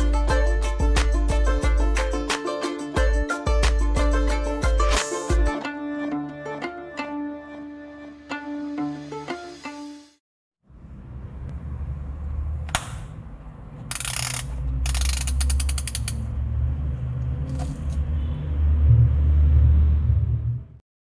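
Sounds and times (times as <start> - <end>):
ratcheting shoe dial clicking: 13.9 - 16.3
low rumble: 18.6 - 20.8.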